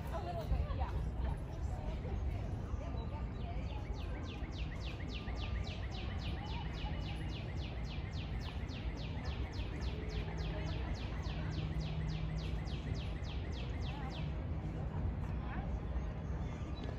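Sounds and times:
low rumble of background noise: 0:00.0 - 0:16.9.

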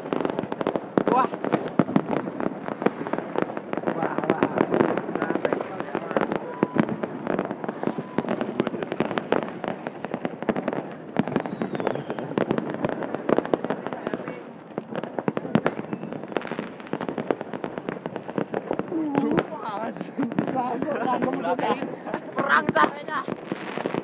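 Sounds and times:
fireworks crackling and banging: 0:00.0 - 0:24.0
faint falling whistle: 0:06.4 - 0:06.9, 0:11.1 - 0:12.2.

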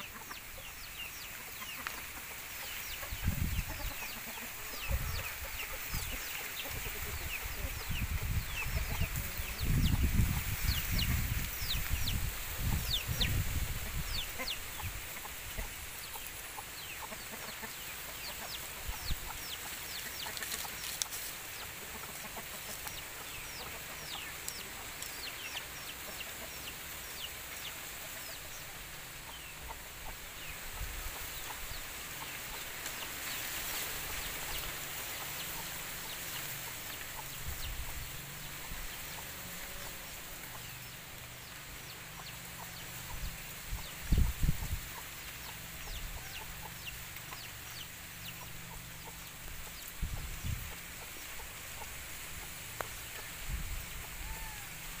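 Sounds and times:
chickens clucking: 0:00.0 - 0:55.0
steady high hiss: 0:00.0 - 0:55.0.

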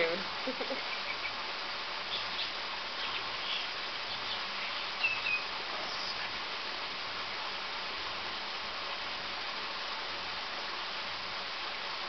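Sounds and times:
steady hiss: 0:00.0 - 0:12.0
faint bird chirps: 0:00.6 - 0:01.4, 0:02.0 - 0:06.4.

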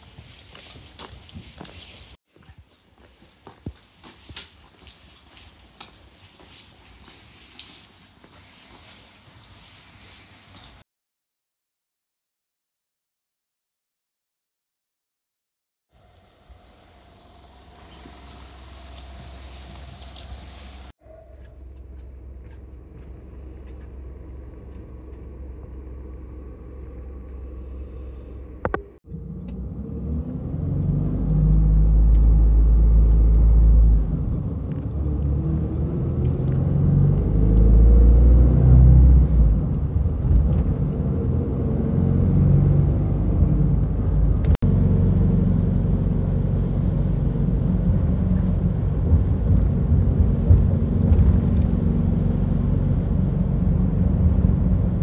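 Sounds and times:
bus engine hum: 0:16.0 - 0:55.0
diesel engine rumble: 0:16.0 - 0:55.0.

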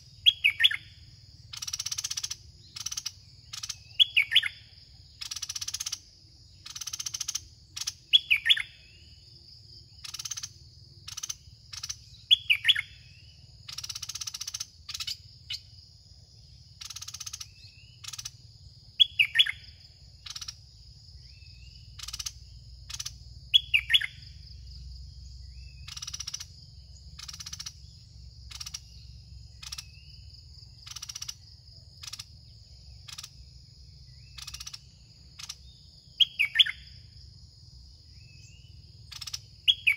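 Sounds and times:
songbirds calling: 0:00.0 - 0:39.9.

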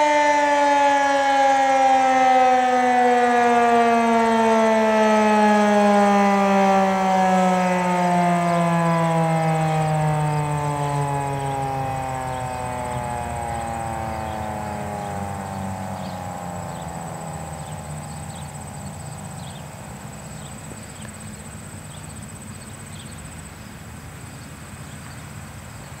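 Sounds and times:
warning siren winding down: 0:00.0 - 0:22.5
high-pitched insect trill: 0:11.3 - 0:23.5
low rumble: 0:12.4 - 0:22.2.

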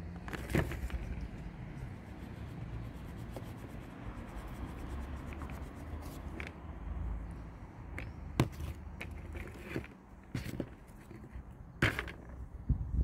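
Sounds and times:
screwdriver scratching plastic: 0:00.3 - 0:06.6.

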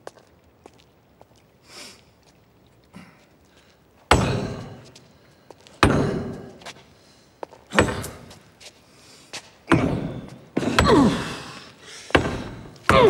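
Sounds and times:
heavy echoing blows: 0:04.1 - 0:08.6, 0:09.6 - 0:13.0.

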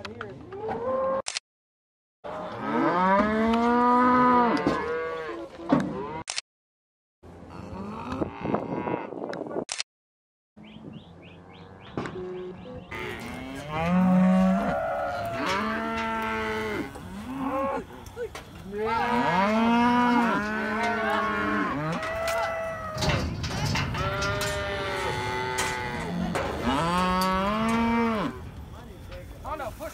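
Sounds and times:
cattle bawling: 0:12.9 - 0:28.5.

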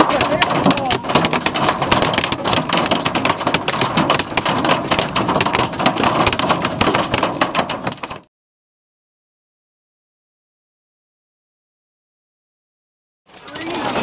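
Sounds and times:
hail and rain hitting vehicle: 0:00.0 - 0:08.3, 0:13.3 - 0:14.0.

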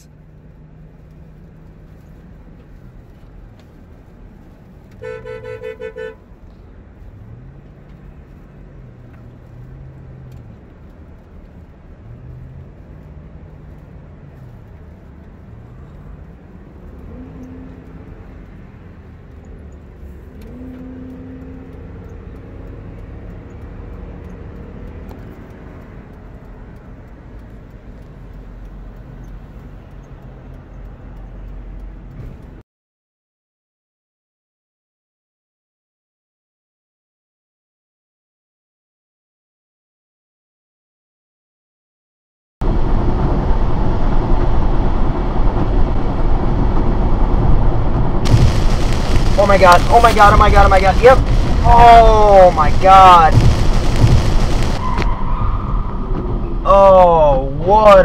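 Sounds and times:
engine and road noise: 0:00.0 - 0:32.6, 0:42.6 - 0:58.0
car horn short beeps: 0:05.0 - 0:06.3.

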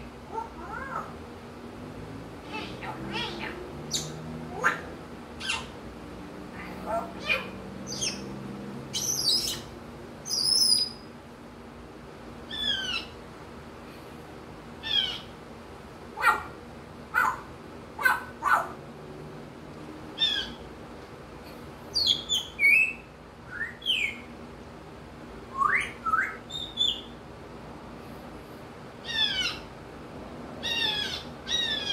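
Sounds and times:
parrot whistles and squawks: 0:05.4 - 0:05.7, 0:12.5 - 0:13.2, 0:25.5 - 0:27.1, 0:30.7 - 0:31.9.

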